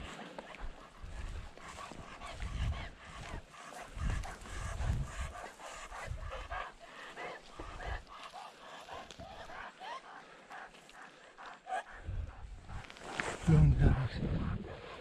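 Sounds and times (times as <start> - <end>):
footsteps on moss and rock: 0.0 - 5.6, 12.6 - 13.5
dog panting: 0.0 - 15.0.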